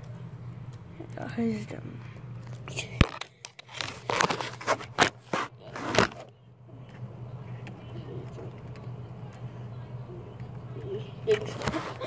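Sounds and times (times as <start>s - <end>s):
faint low hum: 0.0s - 12.0s
phone handling scrapes and knocks: 3.6s - 6.2s.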